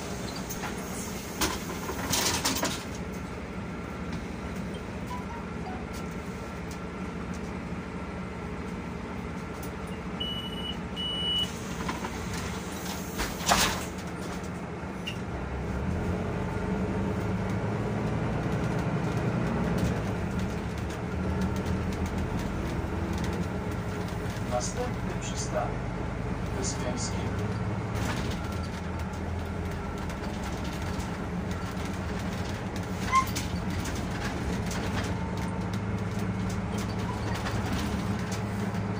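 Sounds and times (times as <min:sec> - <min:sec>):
bus engine pulling away: 0:00.0 - 0:38.9
high door warning beeps: 0:10.2 - 0:11.5.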